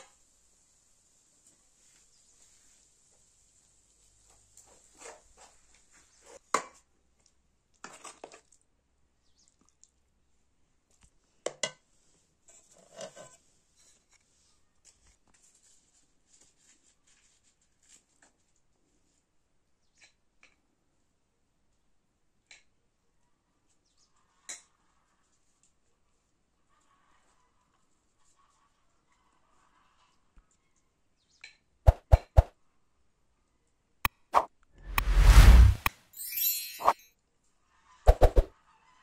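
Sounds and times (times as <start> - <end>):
rustling handling sounds: 13.8 - 18.6.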